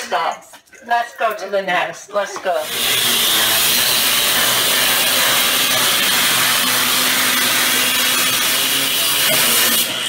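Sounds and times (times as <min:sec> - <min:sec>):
grinder cutting metal: 0:02.6 - 0:10.0.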